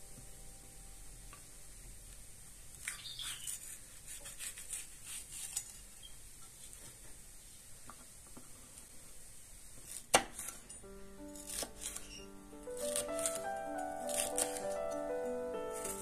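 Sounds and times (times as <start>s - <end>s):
knife cutting bell pepper: 2.7s - 6.0s, 11.4s - 12.2s, 12.8s - 15.0s.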